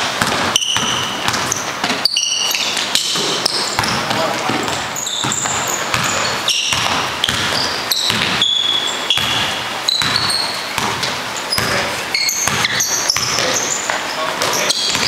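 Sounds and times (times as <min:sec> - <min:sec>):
basketball dribbling on hardwood: 0:00.0 - 0:15.0
sneakers squeaking: 0:00.0 - 0:15.0.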